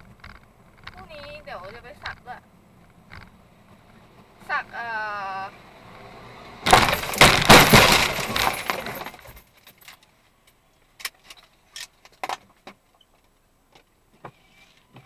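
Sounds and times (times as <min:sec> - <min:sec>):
bus crash impacts and scraping: 0:06.6 - 0:09.6
glass shattering: 0:06.7 - 0:09.8
debris clinking and ticking: 0:06.7 - 0:10.0.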